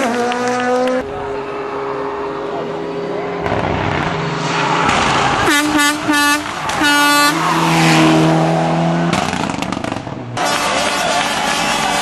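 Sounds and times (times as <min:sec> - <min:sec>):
low steady honk: 0:05.4 - 0:07.5
air horn blasts: 0:05.4 - 0:07.6, 0:10.4 - 0:12.0.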